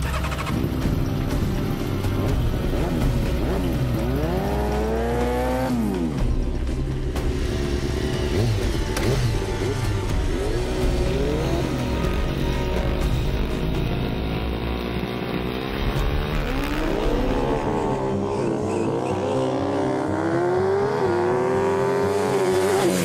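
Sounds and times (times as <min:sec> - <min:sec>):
motorcycle engines revving: 0:00.0 - 0:23.0.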